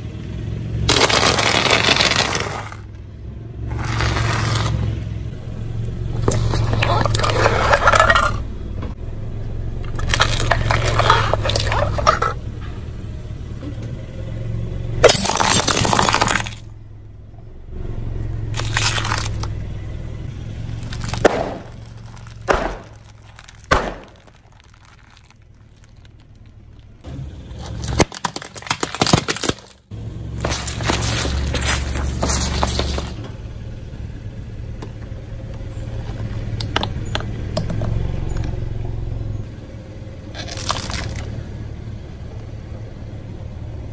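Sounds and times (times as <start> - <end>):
low engine hum: 0.0 - 43.9
objects crunching under tyres: 0.8 - 3.0, 3.6 - 9.0, 9.7 - 12.9, 15.0 - 16.8, 18.3 - 33.6, 34.7 - 41.7
sharp crackles: 0.9 - 3.0, 3.7 - 4.9, 9.9 - 12.4, 15.0 - 16.7, 18.5 - 19.6, 20.6 - 33.2, 40.3 - 41.3.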